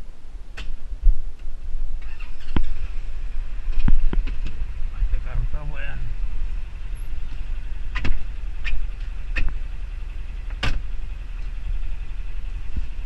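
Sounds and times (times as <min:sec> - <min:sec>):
vehicle engine idling: 0:00.0 - 0:13.0
cab door clicks and knocks: 0:07.9 - 0:09.6, 0:10.5 - 0:10.9.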